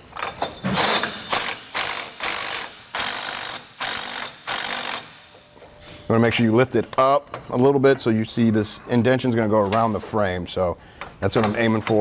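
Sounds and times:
impact wrench bursts: 0:00.6 - 0:05.4.

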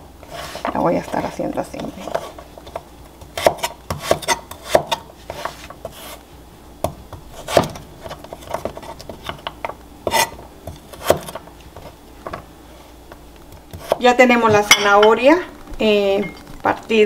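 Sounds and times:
knife cutting carrot on board: 0:03.3 - 0:06.2, 0:10.0 - 0:11.4.

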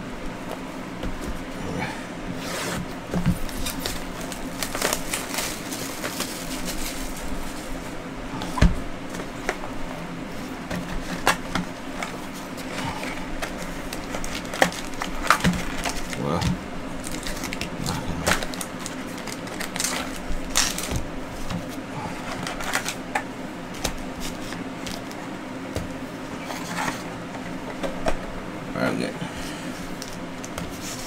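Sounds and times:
cardboard rustling: 0:02.4 - 0:09.6
shrink wrap crackling: 0:03.4 - 0:07.8, 0:13.4 - 0:21.0.

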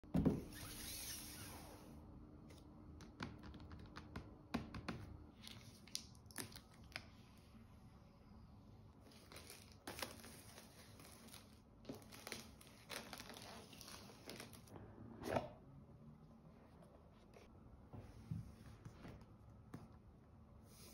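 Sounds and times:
plastic shrink-wrap crinkling: 0:09.1 - 0:14.7.

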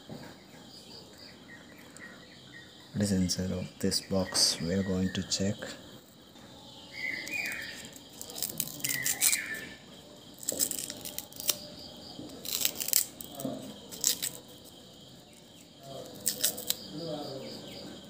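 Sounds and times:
paper wrapping tearing: 0:07.8 - 0:09.6, 0:10.3 - 0:11.7, 0:12.3 - 0:14.6, 0:16.0 - 0:16.8.

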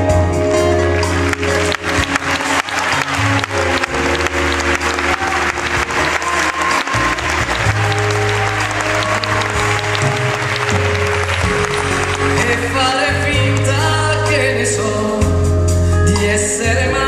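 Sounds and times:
live band playing pop ballad: 0:00.0 - 0:17.0
audience applause: 0:00.9 - 0:13.8.

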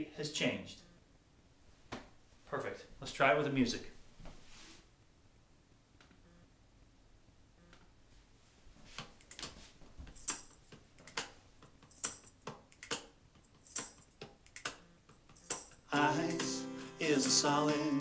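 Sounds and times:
sharp clicks: 0:10.2 - 0:15.8.

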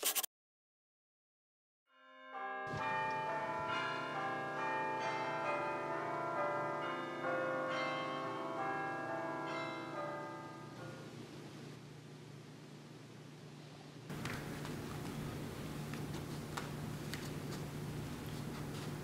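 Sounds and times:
church bells pealing: 0:02.1 - 0:11.3.

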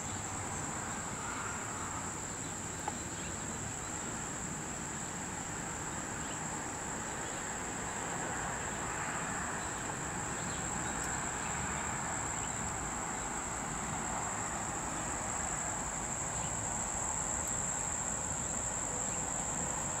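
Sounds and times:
faint outdoor background noise: 0:00.0 - 0:20.0
high-pitched insect trill: 0:05.9 - 0:20.0.

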